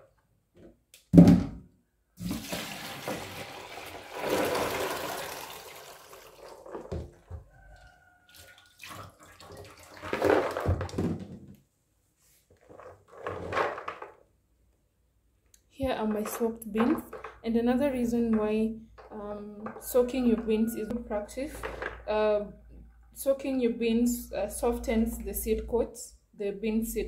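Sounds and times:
thump: 0:01.1 - 0:01.6
water splashing into metal sink: 0:02.2 - 0:10.8.

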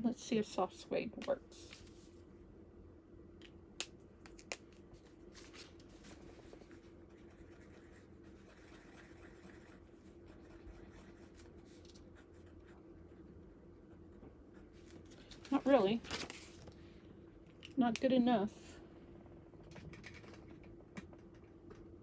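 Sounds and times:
marker scribbling on paper: 0:07.1 - 0:13.2.

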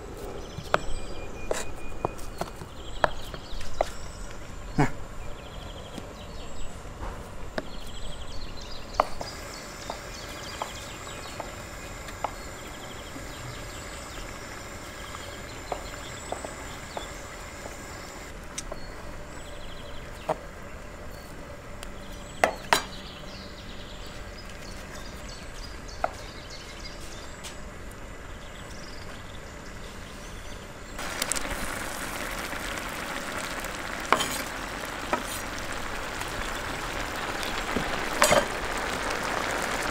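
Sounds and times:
sauce sizzling in pan: 0:09.0 - 0:18.3, 0:31.0 - 0:39.9.

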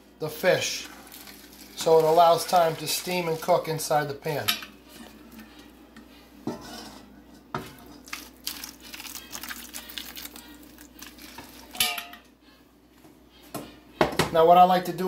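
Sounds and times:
cookware knocking and clinking: 0:06.4 - 0:07.8, 0:11.8 - 0:12.2.

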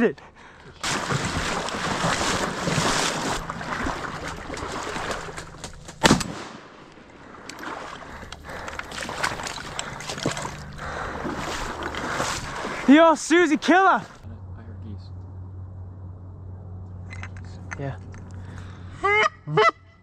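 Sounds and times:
water splashing from paddling: 0:00.8 - 0:05.9, 0:07.2 - 0:14.2.

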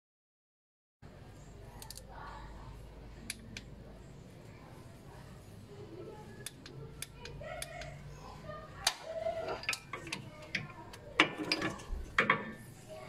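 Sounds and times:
metal socket clicking and clinking: 0:01.8 - 0:02.0.

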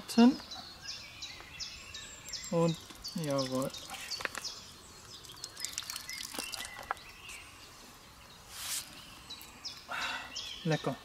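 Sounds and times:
small birds chirping: 0:00.0 - 0:11.0
slurping water: 0:02.8 - 0:07.1.

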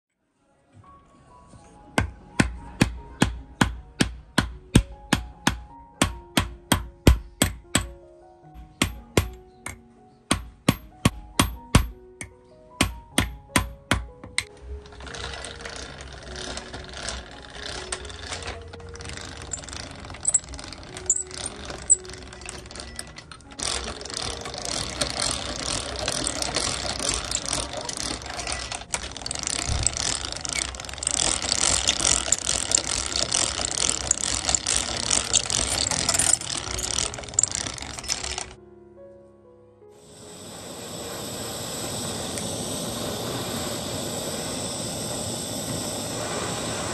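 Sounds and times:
hammer strikes on steel: 0:02.0 - 0:08.0, 0:08.6 - 0:14.5
rolling mill rollers clattering: 0:14.5 - 0:38.6, 0:40.0 - 0:46.9.

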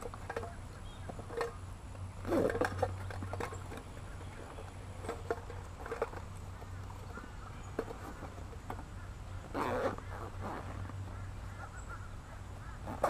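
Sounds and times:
backpack rustling: 0:09.3 - 0:11.2.

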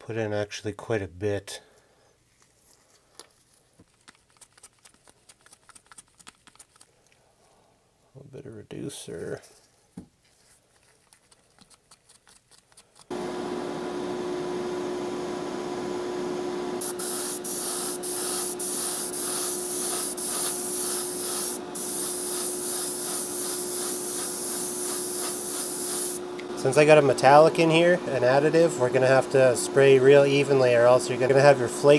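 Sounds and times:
stir stick ticking in plastic cup: 0:03.8 - 0:07.0, 0:10.8 - 0:13.1
airbrush spraying hiss: 0:16.8 - 0:26.2
small motor humming: 0:16.8 - 0:26.5.

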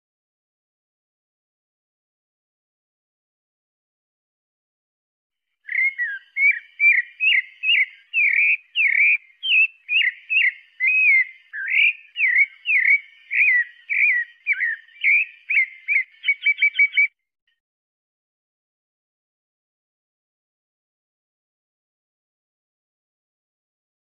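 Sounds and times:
thrush singing whistled notes: 0:05.6 - 0:17.2.

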